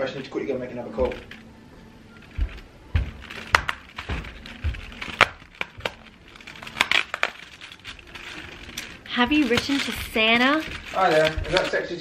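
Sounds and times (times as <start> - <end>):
dull knocks: 2.1 - 6.5
fingers tapping on cardboard: 2.1 - 12.0.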